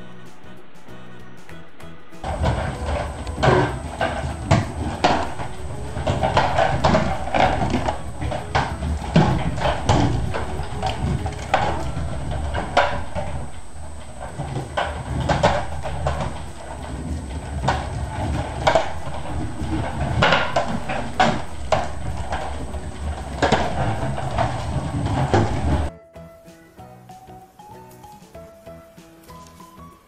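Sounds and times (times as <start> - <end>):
low rolling rumble: 2.0 - 25.9
plastic balls knocking on floor: 2.2 - 25.9.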